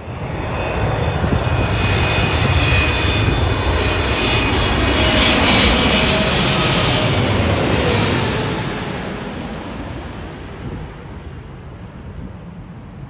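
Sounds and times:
jet airliner passing overhead: 0.0 - 13.0.

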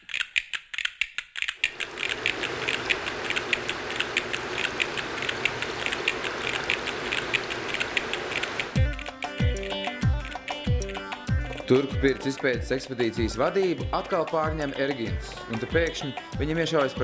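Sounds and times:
fast mechanical ticking: 0.1 - 8.8
steady rushing noise: 1.6 - 8.8
music beat with deep drums: 8.8 - 17.0.

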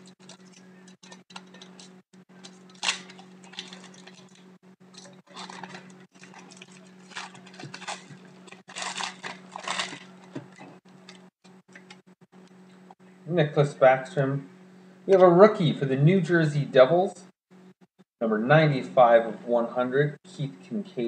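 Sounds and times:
foil wrapper crinkling and tearing: 0.0 - 11.2
low hum: 0.0 - 19.9.

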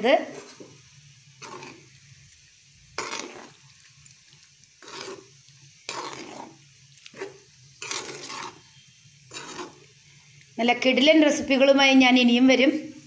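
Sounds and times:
spoon stirring thick curry: 0.2 - 10.6.

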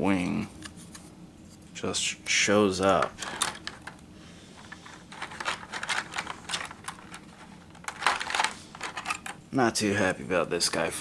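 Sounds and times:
plastic miniatures clattering: 3.0 - 4.0, 4.6 - 9.4.

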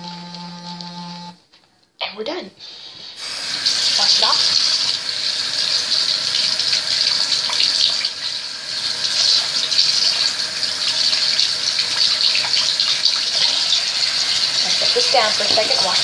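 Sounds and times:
sink tap running: 3.2 - 16.0
water splashing: 3.2 - 16.0.

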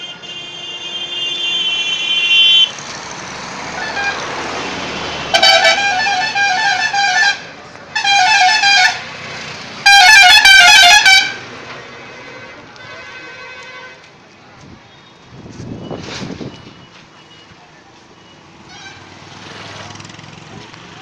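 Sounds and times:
steady car horn: 0.0 - 2.8, 3.8 - 4.3, 5.2 - 9.1, 9.8 - 11.4, 12.0 - 14.0
road noise: 0.0 - 21.0.

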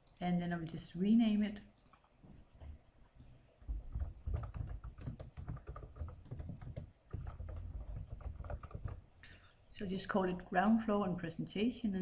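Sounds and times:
typing on computer keyboard: 3.9 - 9.0.

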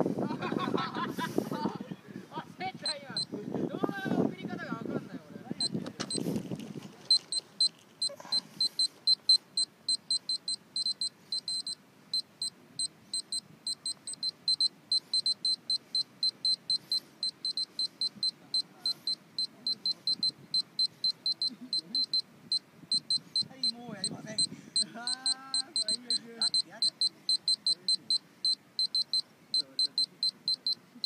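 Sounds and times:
short high-pitched beeps: 2.8 - 3.4, 5.6 - 6.4, 7.1 - 31.0.

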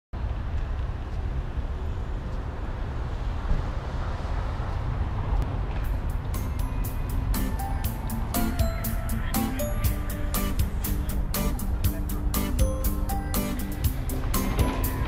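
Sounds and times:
city traffic rumble: 0.2 - 15.0
music with sharp beats: 5.8 - 15.0.

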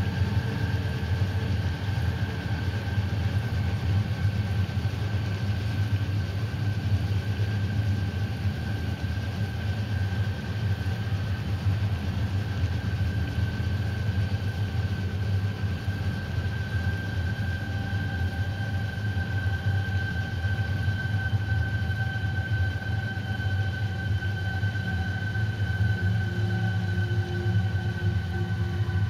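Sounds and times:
high whine: 19.0 - 29.0.

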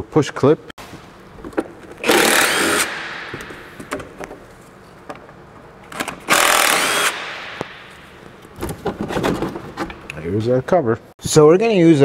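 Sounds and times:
power tool bursts: 2.0 - 3.6, 6.0 - 7.7.

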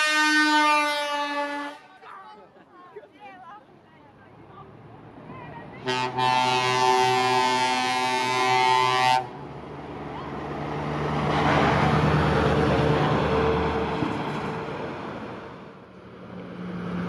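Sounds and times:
heavy truck driving past: 4.4 - 17.0
truck air horn chord: 5.8 - 9.3.

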